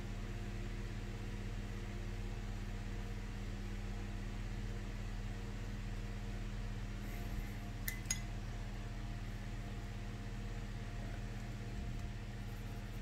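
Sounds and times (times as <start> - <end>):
steady low hum: 0.0 - 13.0
paintbrush clinking against glass: 7.9 - 8.3.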